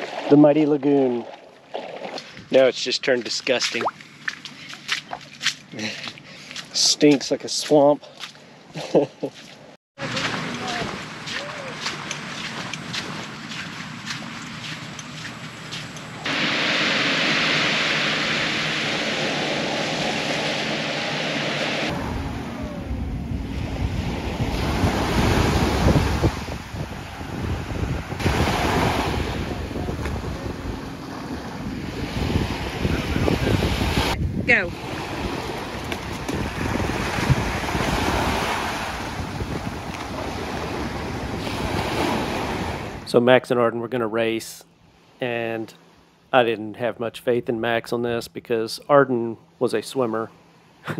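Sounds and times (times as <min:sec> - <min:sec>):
waves washing onto beach: 0:00.0 - 0:03.9, 0:10.0 - 0:43.0
wind buffeting microphone: 0:21.9 - 0:43.1.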